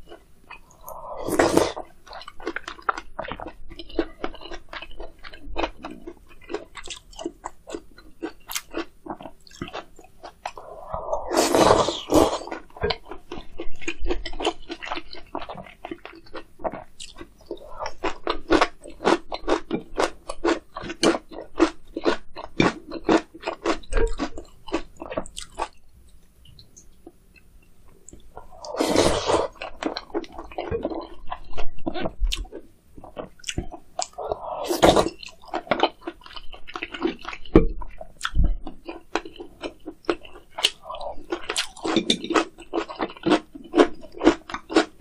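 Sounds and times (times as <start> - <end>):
crunchy chewing: 0.0 - 25.8, 28.0 - 45.0
slurping soup: 0.5 - 1.9, 10.5 - 12.7, 28.4 - 30.5, 34.1 - 35.4.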